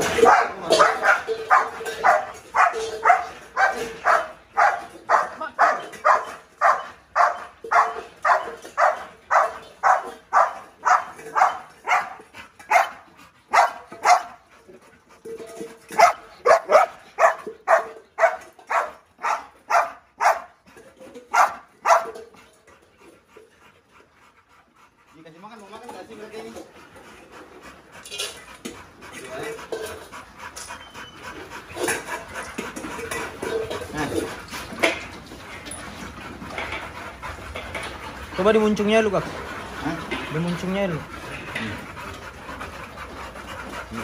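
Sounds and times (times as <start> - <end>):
dog barking: 0.2 - 12.9, 13.5 - 14.4, 16.0 - 20.5, 21.3 - 22.1.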